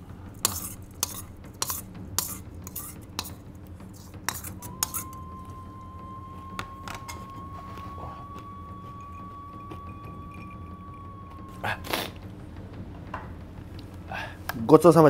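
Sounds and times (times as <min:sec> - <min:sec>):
spoon and fork scraping metal bowl: 0:00.4 - 0:05.2
steady thin high tone: 0:04.5 - 0:13.6.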